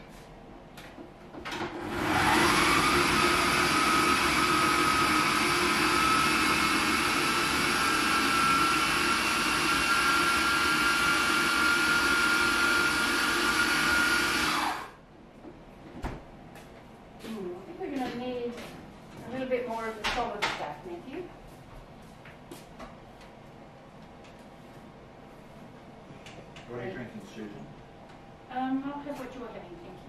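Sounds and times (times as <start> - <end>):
kitchen appliance motor whining: 1.6 - 15.0.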